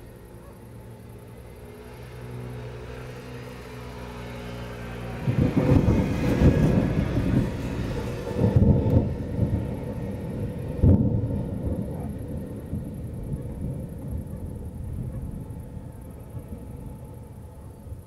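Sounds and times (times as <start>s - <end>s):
thunder rumbling: 4.8s - 18.0s.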